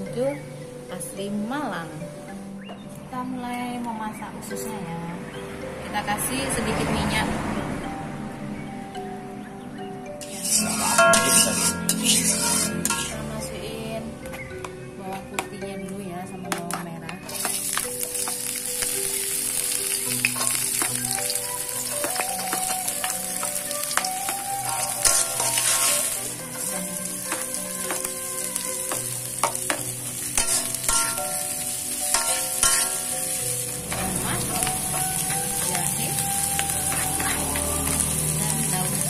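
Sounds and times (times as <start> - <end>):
food sizzling in hot oil: 10.2 - 13.3, 17.2 - 39.0
metal spatula scraping pan: 10.2 - 13.3, 17.3 - 18.5, 20.2 - 31.4, 32.1 - 38.0.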